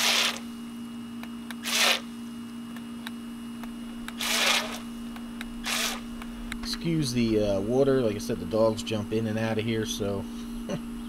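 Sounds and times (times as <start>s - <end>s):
toy jet ski motors whirring: 0.0s - 0.4s
steady low hum: 0.0s - 11.0s.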